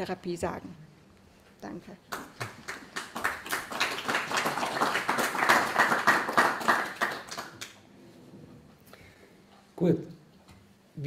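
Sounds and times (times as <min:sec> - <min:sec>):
audience applauding: 0:02.1 - 0:07.8.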